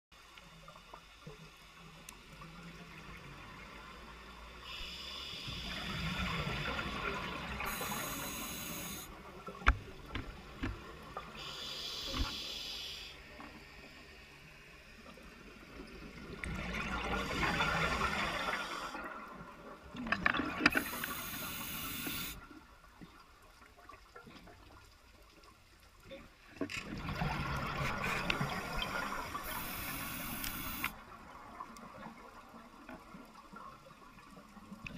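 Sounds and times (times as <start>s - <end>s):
diver breathing through regulator: 29.5s - 30.9s.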